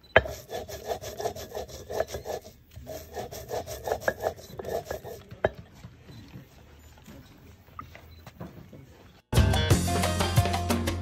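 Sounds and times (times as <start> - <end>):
stone roller grinding on stone: 0.0 - 5.9.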